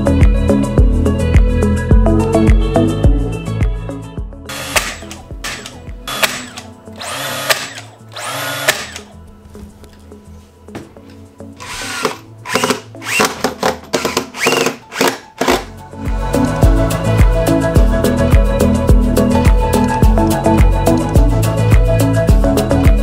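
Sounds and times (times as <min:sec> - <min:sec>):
brad nailer firing nails: 0:04.5 - 0:09.1, 0:11.6 - 0:15.8
cordless drill driving screws: 0:04.5 - 0:09.1, 0:11.6 - 0:15.7.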